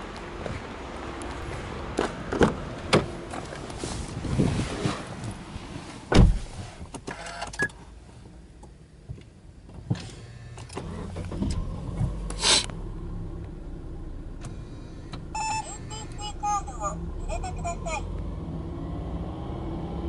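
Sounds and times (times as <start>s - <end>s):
car door shutting: 2.0s - 3.6s, 6.0s - 7.7s
car engine starting and idling: 5.2s - 20.0s.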